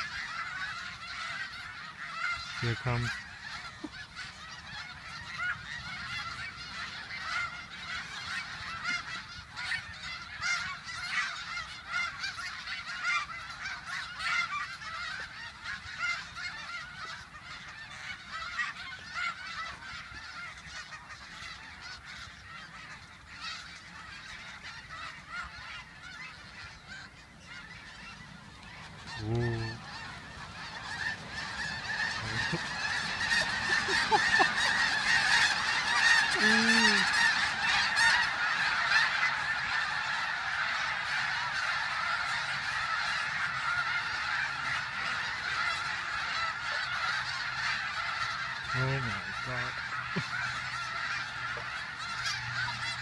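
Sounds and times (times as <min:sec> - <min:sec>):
geese honking: 0:00.0 - 0:53.0.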